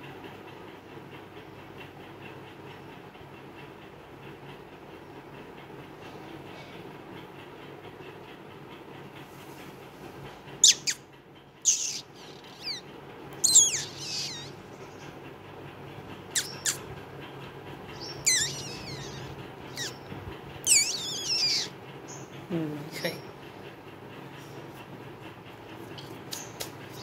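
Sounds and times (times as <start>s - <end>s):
nestling bird cheeping: 10.6s - 11.0s, 11.6s - 14.6s, 16.3s - 16.8s, 17.9s - 20.1s, 20.7s - 22.3s.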